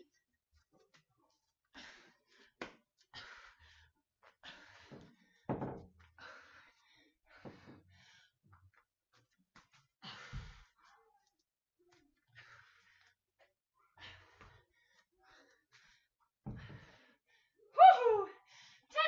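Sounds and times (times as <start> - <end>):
woman breathing hard: 1.7 - 8.4, 10.0 - 10.8, 13.9 - 17.6.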